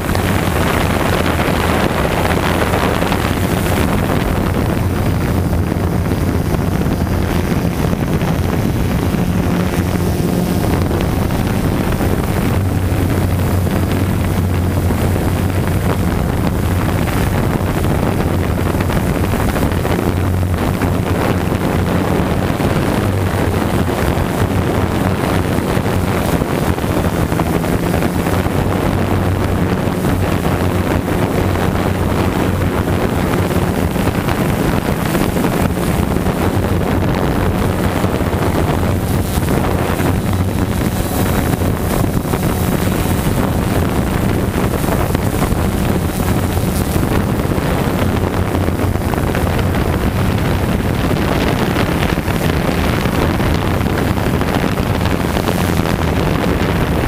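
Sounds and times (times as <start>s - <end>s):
drone propellers humming: 0.0s - 57.0s
wind rush on microphone: 0.0s - 57.0s.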